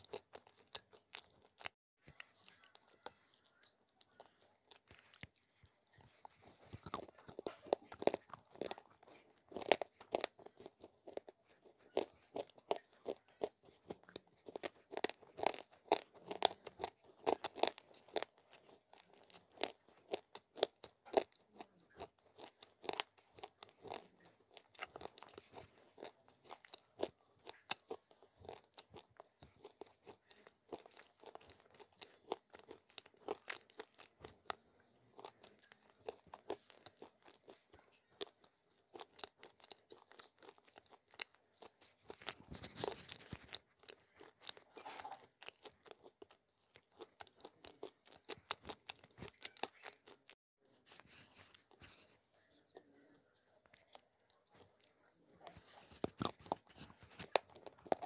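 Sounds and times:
crunching and chewing clay: 0:00.0 - 0:58.0.

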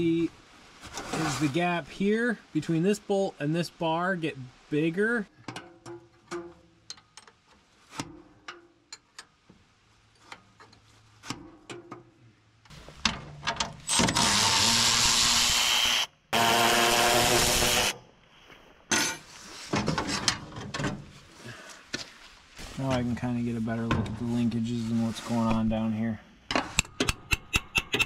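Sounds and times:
metal tools clicking and tapping: 0:08.4 - 0:09.4
handheld power tool running: 0:13.9 - 0:18.0.

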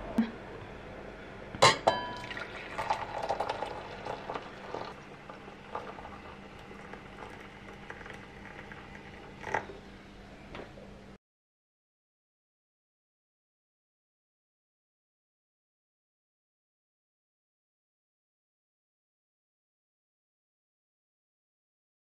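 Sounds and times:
glass clinking: 0:01.6 - 0:03.7
tea pouring into glass mug: 0:02.1 - 0:09.8.

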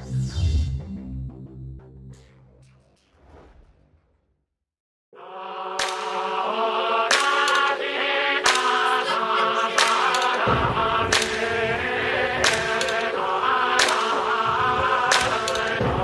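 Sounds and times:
choir-like chanting chord: 0:05.2 - 0:16.0.

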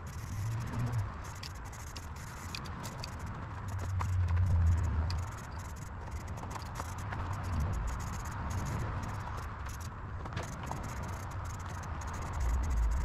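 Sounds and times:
small clicks: 0:00.0 - 0:13.0
spray paint can hissing: 0:00.0 - 0:13.0
low rumble: 0:03.6 - 0:05.6, 0:12.2 - 0:13.0.

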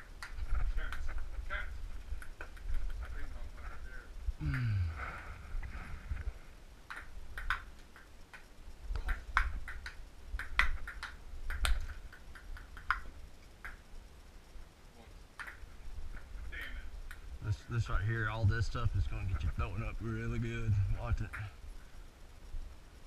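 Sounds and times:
table tennis ball clicks: 0:06.9 - 0:13.9, 0:15.4 - 0:15.6.

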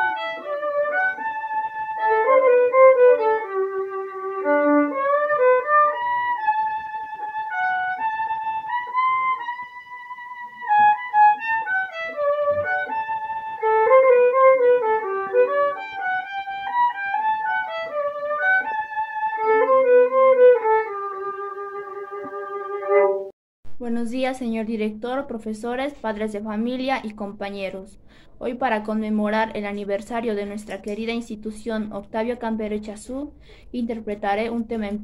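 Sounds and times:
solo violin melody: 0:00.0 - 0:23.3.

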